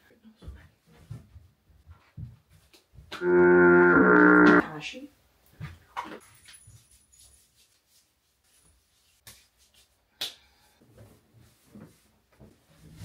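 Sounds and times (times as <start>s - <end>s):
soft knocks and rustles: 0.4s - 3.1s, 10.8s - 13.0s.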